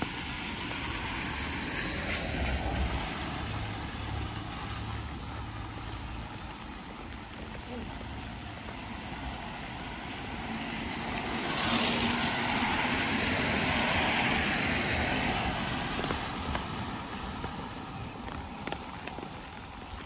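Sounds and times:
passing vehicle hiss: 0.0s - 5.7s, 8.8s - 17.0s
steady rain: 0.0s - 20.0s.

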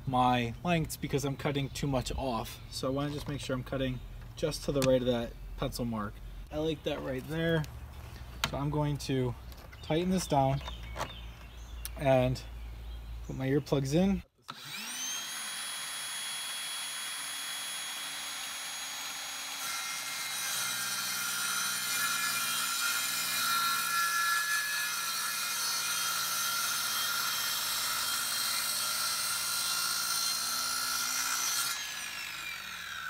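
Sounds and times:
miter saw motor whine: 14.5s - 23.4s, 25.8s - 33.0s
saw blade cutting wood: 14.5s - 33.0s.

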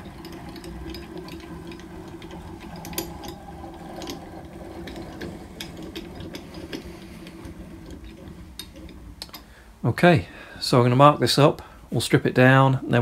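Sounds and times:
mechanical whir: 0.0s - 9.5s
light clicks and ticks: 0.0s - 9.6s.

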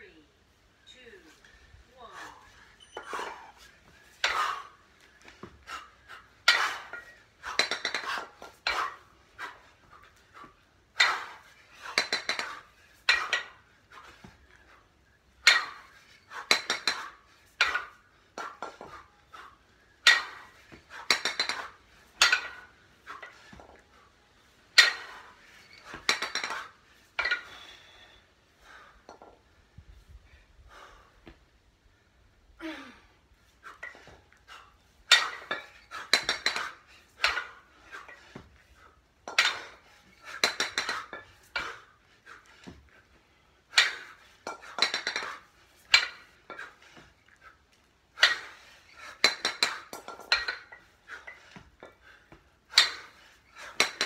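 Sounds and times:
kettlebells clanking together: 2.4s - 14.3s, 15.3s - 27.8s, 33.6s - 38.6s, 39.2s - 42.9s, 43.6s - 47.1s, 48.1s - 54.0s.

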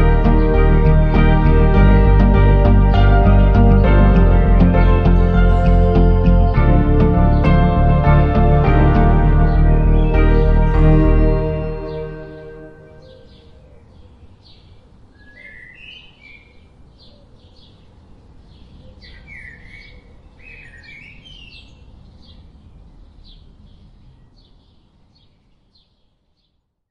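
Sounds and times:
birds chirping: 0.0s - 14.7s.

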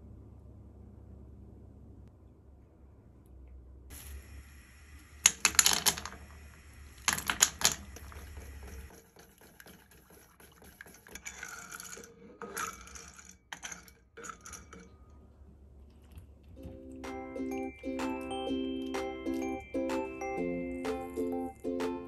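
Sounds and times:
utensils scraping a saucepan: 8.0s - 15.1s.

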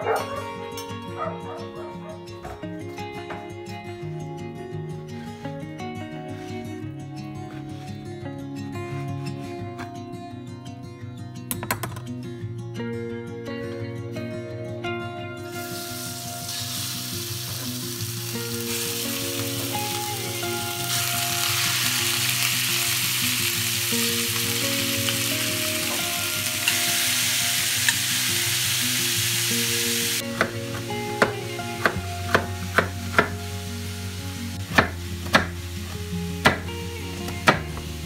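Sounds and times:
meat sizzling in oil: 15.6s - 30.2s, 30.8s - 38.0s
knife chopping on wooden board: 30.4s - 30.6s, 31.2s - 33.3s, 34.7s - 35.6s, 36.4s - 36.7s.

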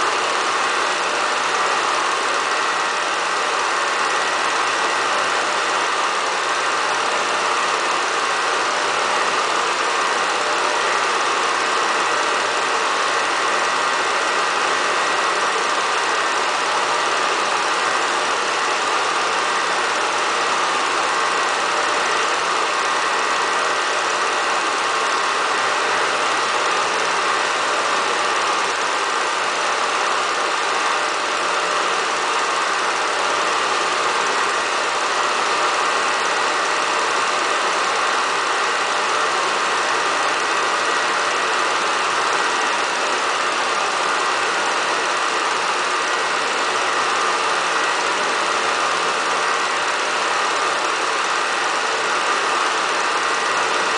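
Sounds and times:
mechanical running noise with whine: 0.0s - 53.9s.

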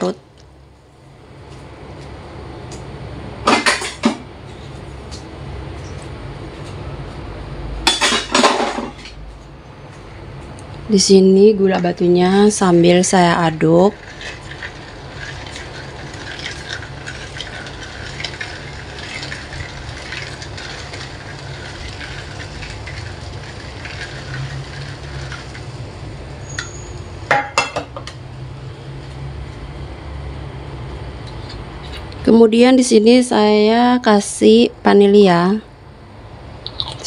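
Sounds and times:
ladle scraping clay pot: 12.6s - 27.0s.

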